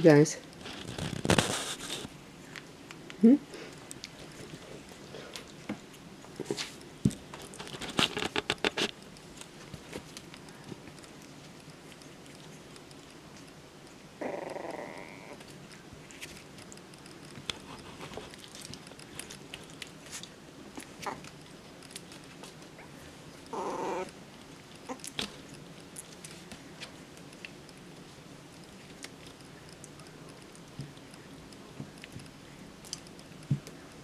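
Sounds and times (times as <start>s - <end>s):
puppy growls: 13.9s - 15.5s, 20.7s - 21.4s, 22.7s - 25.5s.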